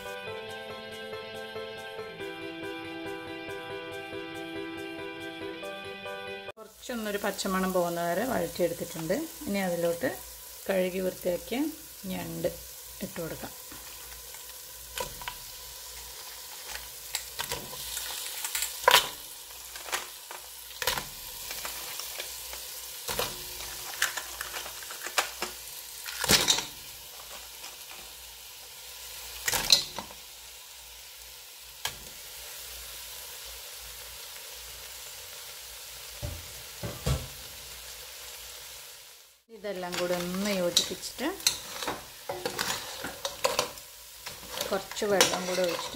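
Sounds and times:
masala sizzling in a pot: 0.0 - 1.5, 6.5 - 45.9
crab shells clacking against pot: 13.6 - 27.4, 39.9 - 45.9.

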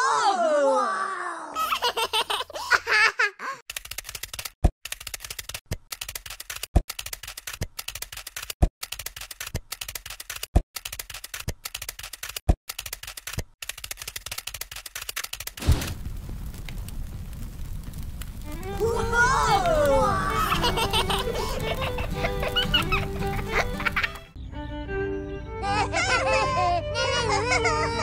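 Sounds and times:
person laughing: 1.6 - 3.6, 19.9 - 24.3, 25.6 - 28.0
rapid dense clicking: 3.7 - 18.8.

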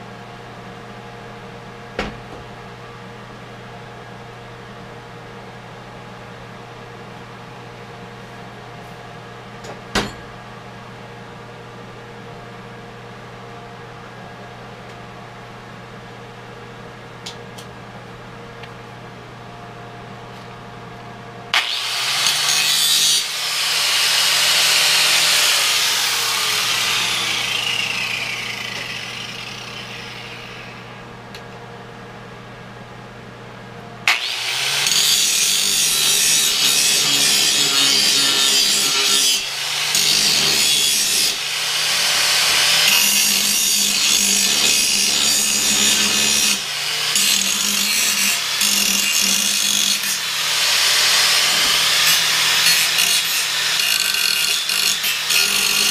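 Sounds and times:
angle grinder grinding steel: 21.6 - 31.0, 34.1 - 55.9
angle grinder winding down: 21.6 - 31.0.

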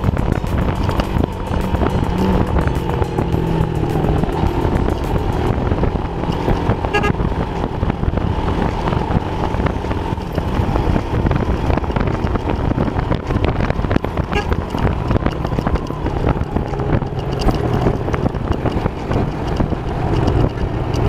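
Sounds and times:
motorcycle engine: 0.0 - 21.0
road noise: 0.0 - 21.0
wind buffeting microphone: 0.0 - 21.0
vehicle horn toot: 6.8 - 7.3, 14.2 - 14.8.

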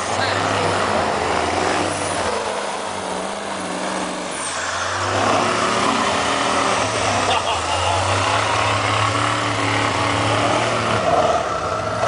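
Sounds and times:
truck engine revving: 0.0 - 12.0.

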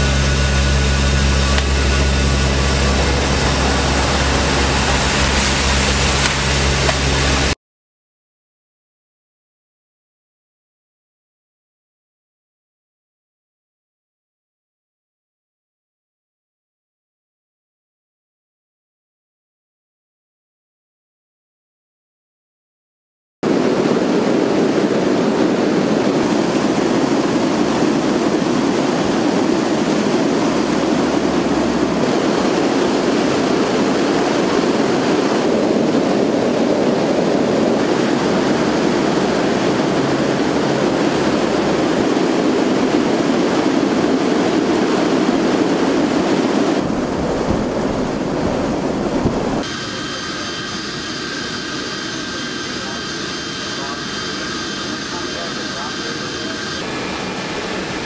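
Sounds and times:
aircraft engine and slipstream rush: 0.0 - 7.6, 23.4 - 58.0
jet engine whine: 0.0 - 7.6, 23.4 - 58.0.

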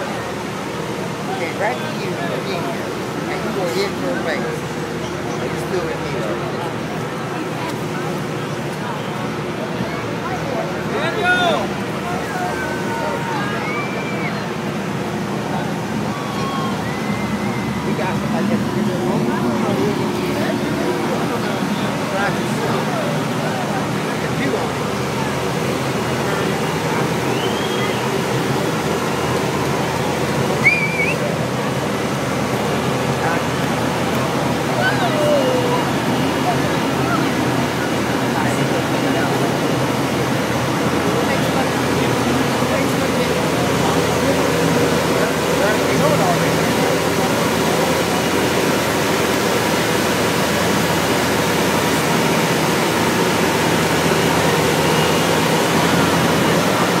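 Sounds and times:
crowd of onlookers: 0.0 - 57.0
diesel engines running: 0.0 - 57.0
short wavering whistle: 16.1 - 17.8, 27.3 - 28.2, 30.6 - 31.3.

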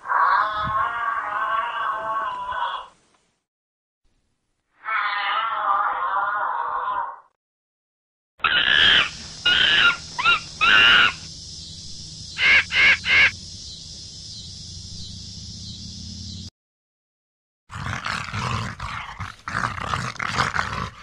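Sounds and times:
animal calls: 8.4 - 11.3, 12.4 - 13.4
steady background hiss: 8.8 - 16.5.

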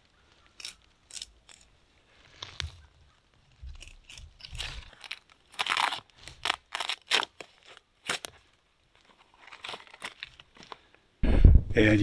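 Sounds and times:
knife cutting bark: 0.6 - 1.7.

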